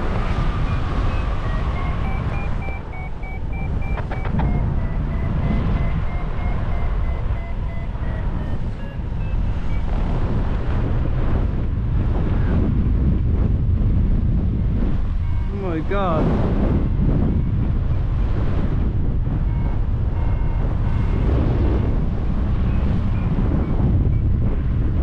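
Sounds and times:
wind buffeting microphone: 0.0 - 25.0
faint high two-pitch beeps: 0.7 - 9.9.

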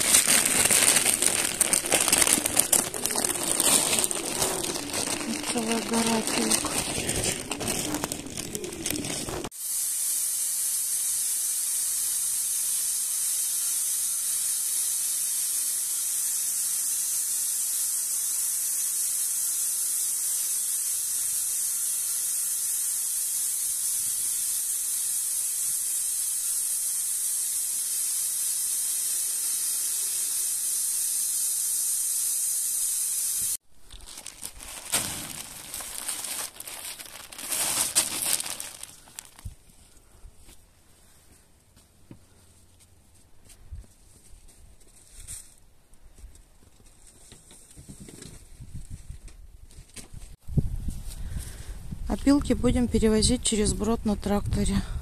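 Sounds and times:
band saw hissing: 0.0 - 33.6.

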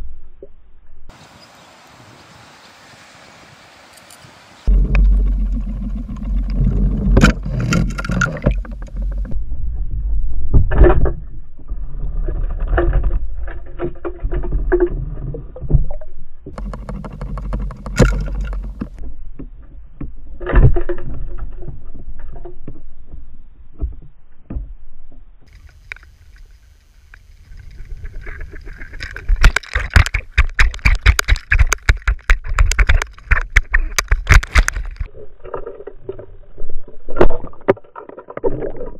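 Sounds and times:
knocks underwater: 4.7 - 9.4, 10.5 - 22.9, 28.1 - 35.7.

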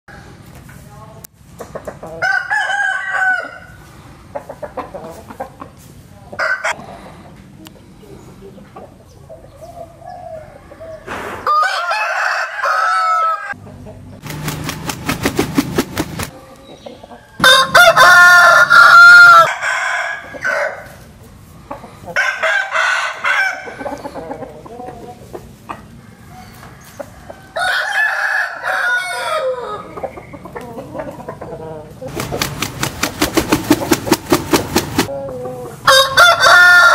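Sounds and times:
rooster crowing: 2.2 - 3.8, 10.2 - 13.6, 17.2 - 21.0, 22.2 - 23.8, 26.0 - 29.9, 35.8 - 36.9
wings flapping: 14.2 - 16.3, 32.1 - 35.1.

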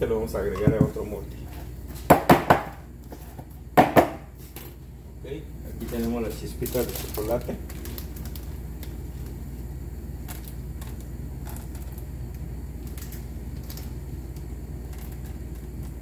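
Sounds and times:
steady low hum: 0.0 - 16.0
plastic bag crinkling: 5.8 - 9.4, 10.2 - 12.1, 12.8 - 14.0.

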